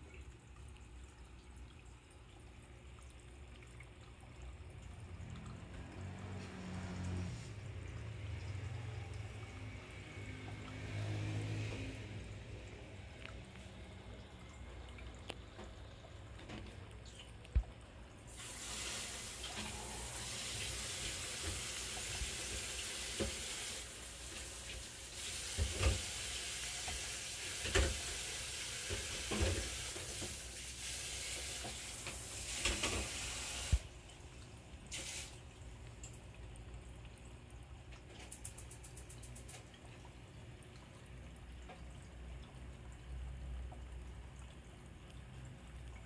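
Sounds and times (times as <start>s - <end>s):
water running from tap: 18.3s - 34.0s, 34.9s - 35.5s, 38.2s - 39.8s.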